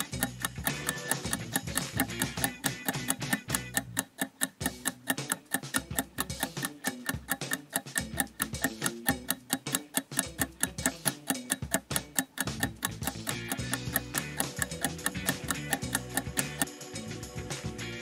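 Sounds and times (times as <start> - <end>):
countdown timer ticking: 0.0 - 18.0
light music: 0.0 - 18.0.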